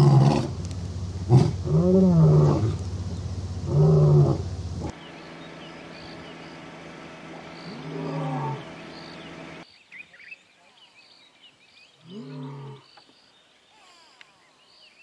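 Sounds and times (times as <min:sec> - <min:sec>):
lion roaring: 0:00.0 - 0:00.6, 0:01.2 - 0:02.8, 0:03.6 - 0:04.9, 0:07.6 - 0:08.9.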